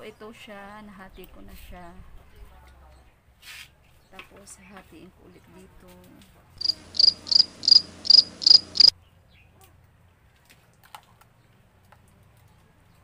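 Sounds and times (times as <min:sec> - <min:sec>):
cricket chirping: 0:06.6 - 0:08.9.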